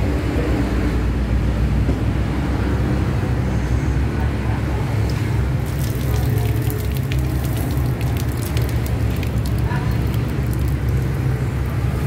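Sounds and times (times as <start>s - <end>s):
water spray pattering on cardboard: 5.6s - 11.9s.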